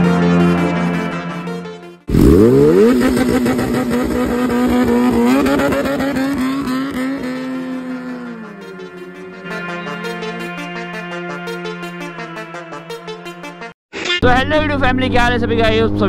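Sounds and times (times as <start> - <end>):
motorcycle engine revving: 2.0 - 13.6.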